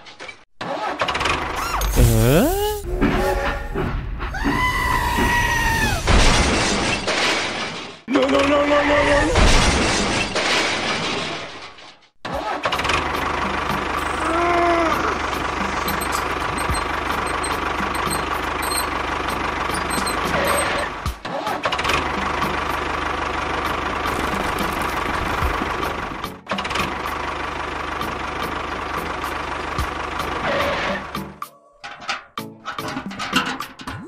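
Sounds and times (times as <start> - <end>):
tractor engine running: 12.8 - 31.2.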